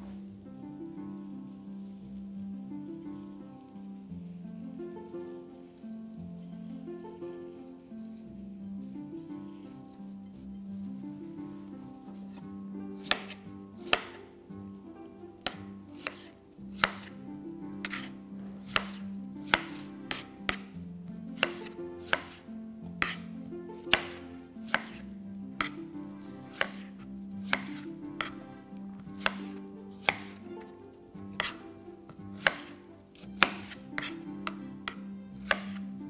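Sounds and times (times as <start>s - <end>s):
knife tapping cutting board: 12.3s - 14.4s, 15.4s - 17.2s, 17.8s - 20.8s, 21.4s - 36.0s.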